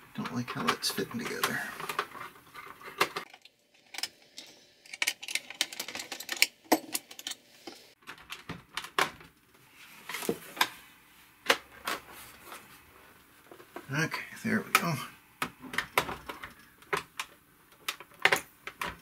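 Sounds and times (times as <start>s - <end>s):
plastic parts clicking and snapping: 0.3s - 7.4s, 8.0s - 9.4s, 14.7s - 19.0s.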